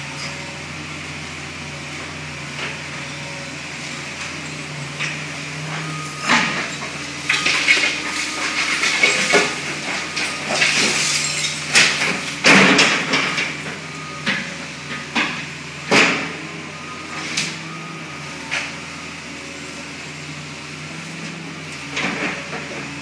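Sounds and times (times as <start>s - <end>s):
excavator engine humming: 0.0s - 23.0s
debris crashing into steel trailer: 6.3s - 13.7s.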